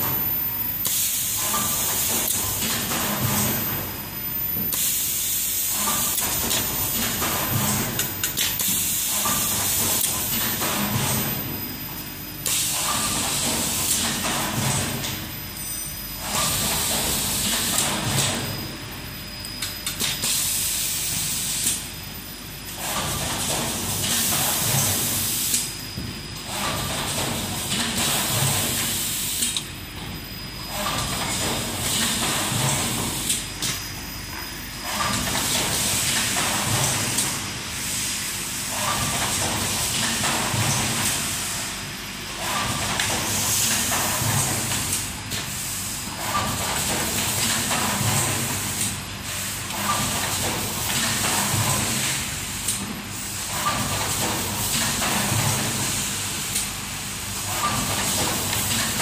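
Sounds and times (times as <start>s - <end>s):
machine hissing: 12.4s - 15.2s.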